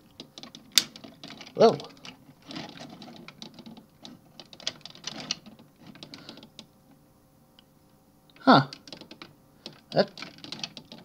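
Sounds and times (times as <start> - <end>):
plastic toy parts clicking: 0.2 - 6.7, 8.7 - 11.0.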